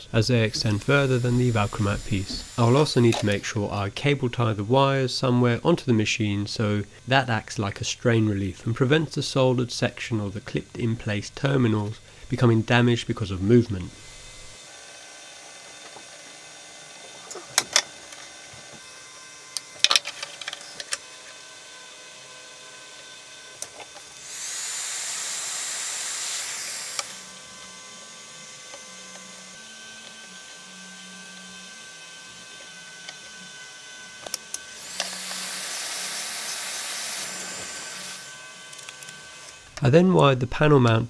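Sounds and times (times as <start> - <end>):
heat gun blowing: 0.0 - 3.6, 13.5 - 39.9.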